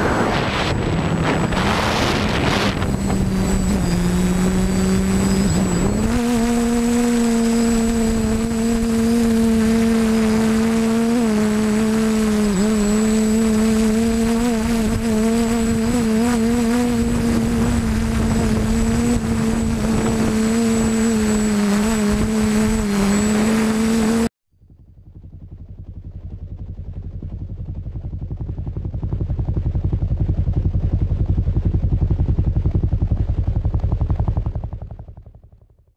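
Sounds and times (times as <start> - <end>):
drone propellers buzzing: 0.0 - 24.3
wind noise: 0.0 - 24.3.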